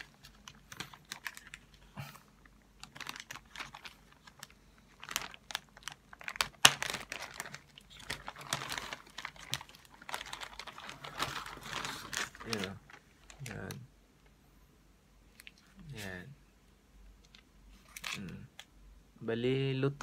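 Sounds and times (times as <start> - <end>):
plastic packaging rustling: 0.0 - 13.8, 17.2 - 18.7.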